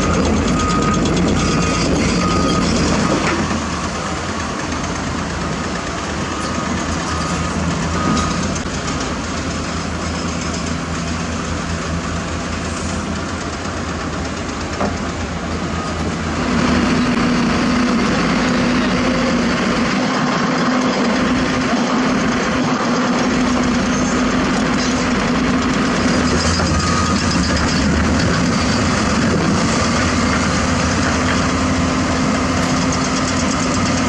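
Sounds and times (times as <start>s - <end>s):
warning alarm beeps: 0.0s - 3.2s, 6.3s - 8.6s
heavy diesel engines running: 0.0s - 34.0s.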